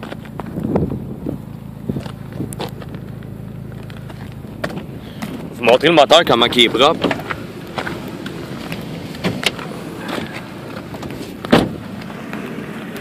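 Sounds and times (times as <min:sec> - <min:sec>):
car door shutting: 0:03.7 - 0:05.5, 0:06.4 - 0:13.0.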